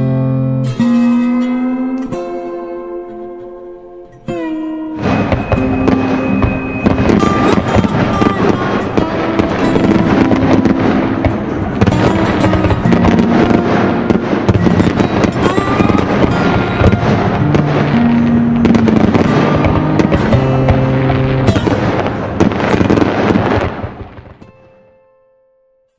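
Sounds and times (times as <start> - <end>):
music with long held notes: 0.0 - 25.4
fireworks bursting and crackling: 5.0 - 24.9.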